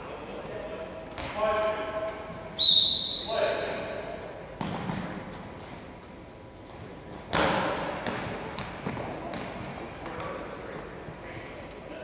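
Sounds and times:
ball slamming on hardwood court: 4.6 - 5.2, 7.3 - 9.5.

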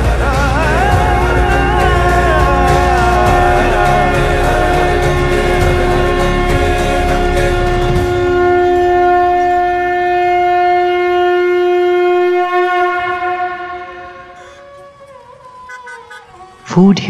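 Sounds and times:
conch shell blown: 3.2 - 16.7.

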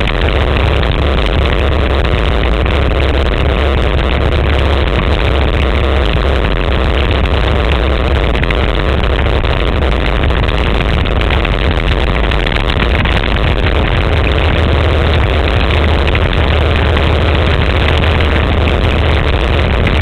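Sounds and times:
quad bike engine running: 0.0 - 20.0
rushing wind noise: 0.0 - 20.0.

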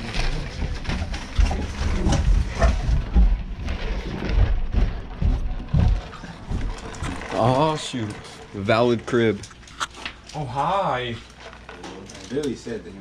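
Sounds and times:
footsteps: 0.0 - 10.3.

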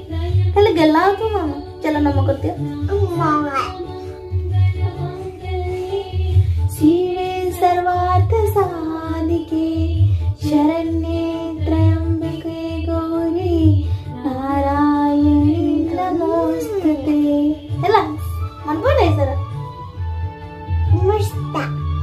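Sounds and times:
woman singing: 0.0 - 19.7
child singing: 2.7 - 9.9, 10.5 - 18.1.

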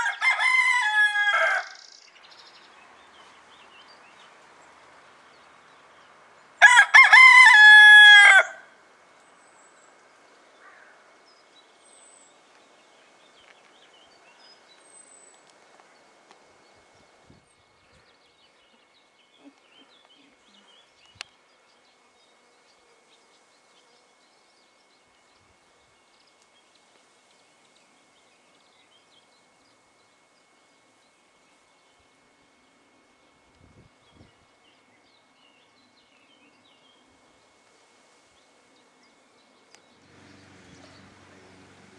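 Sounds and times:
cockerel crowing: 0.0 - 1.8, 6.6 - 8.8
faint sharp click: 39.7 - 39.9.

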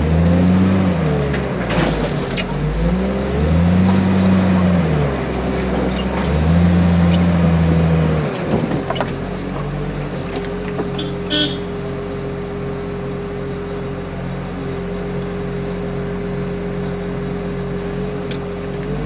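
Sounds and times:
diesel engine revving: 0.0 - 19.0
metallic squeak or clank: 5.6 - 7.3, 10.8 - 13.8.

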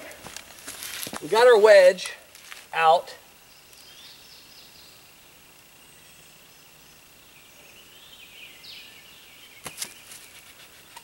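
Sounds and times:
birds calling faintly: 2.3 - 11.0.

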